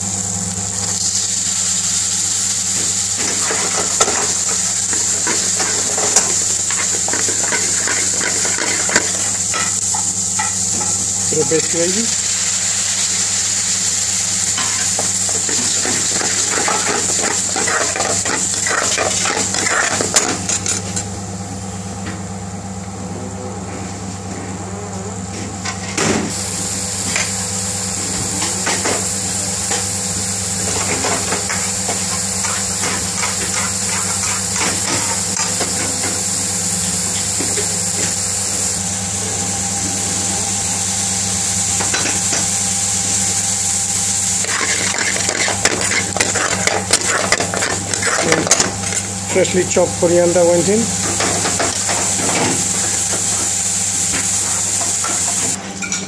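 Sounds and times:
curry sizzling in a frying pan: 0:00.0 - 0:22.9, 0:25.5 - 0:56.0
steady low hum: 0:00.0 - 0:56.0
metal spoon scraping a pan: 0:03.2 - 0:09.8, 0:14.6 - 0:20.7, 0:32.4 - 0:35.6, 0:44.4 - 0:49.0.

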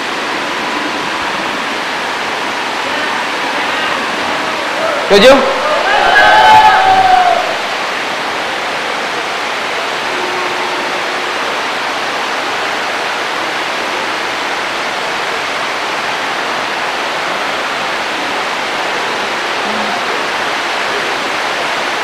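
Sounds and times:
steady background hiss: 0:00.0 - 0:22.0.

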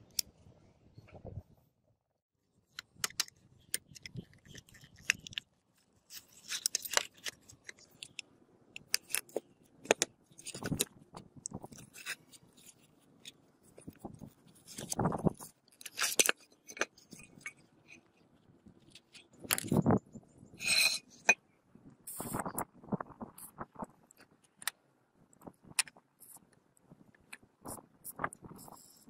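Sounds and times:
metal scraping on concrete: 0:20.6 - 0:21.4.

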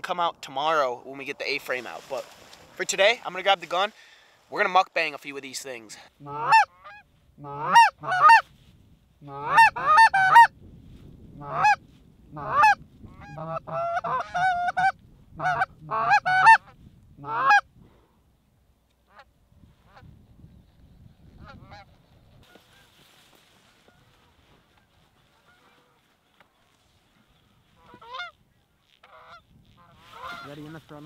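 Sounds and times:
goose call honks and clucks: 0:06.2 - 0:08.4, 0:09.2 - 0:10.5, 0:11.4 - 0:17.7, 0:21.4 - 0:23.0, 0:23.8 - 0:26.1, 0:27.7 - 0:30.9.

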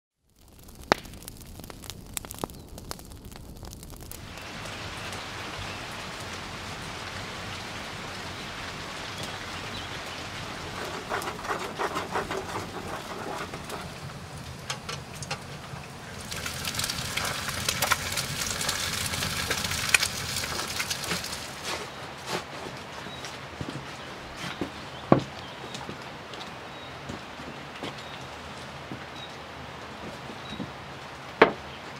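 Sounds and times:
food frying in hot fat: 0:00.2 - 0:22.0.

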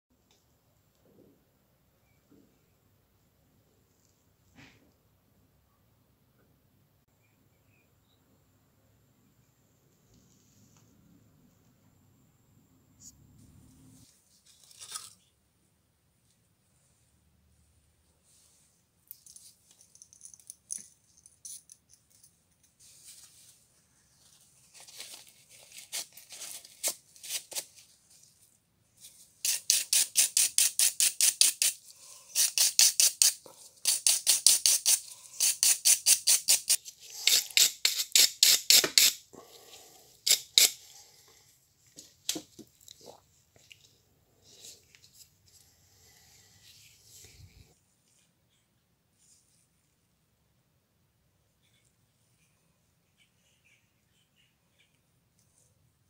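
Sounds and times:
brush scrubbing metal: 0:29.4 - 0:39.2.

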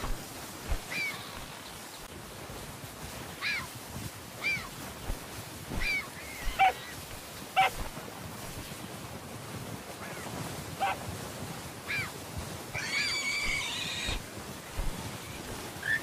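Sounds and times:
short animal calls: 0:05.8 - 0:07.0, 0:07.6 - 0:07.8, 0:12.8 - 0:14.2.

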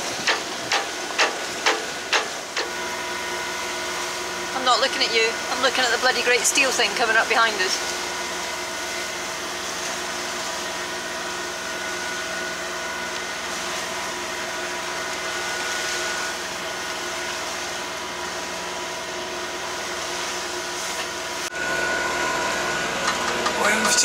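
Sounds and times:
wind and water rushing: 0:00.0 - 0:18.2
boat engine droning: 0:00.0 - 0:24.0.

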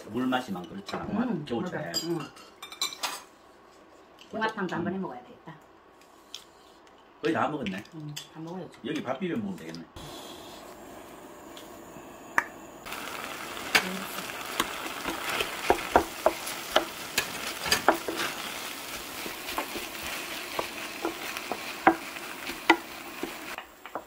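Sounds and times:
rice sizzling in a pan: 0:10.0 - 0:24.0
spatula scraping and tapping pan: 0:14.5 - 0:24.0.

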